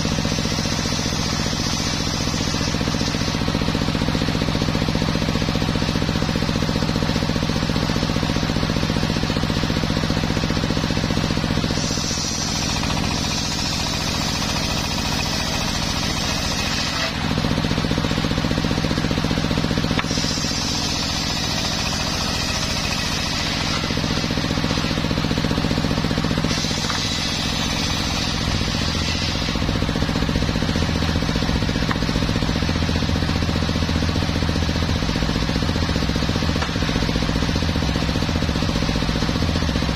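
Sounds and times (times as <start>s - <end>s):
saw blade cutting wood hiss: 0.0s - 3.8s, 11.5s - 17.5s, 19.5s - 30.3s
circular saw humming: 0.0s - 39.6s.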